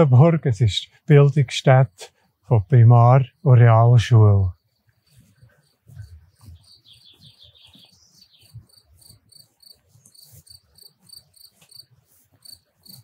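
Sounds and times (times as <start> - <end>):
crickets chirping: 0.2 - 13.0
bird twittering: 5.1 - 10.7.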